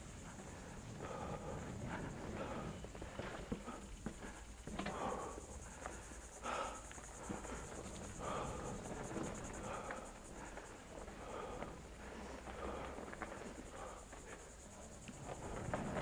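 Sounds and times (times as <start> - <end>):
high pulsing insect buzz: 0.0 - 12.0.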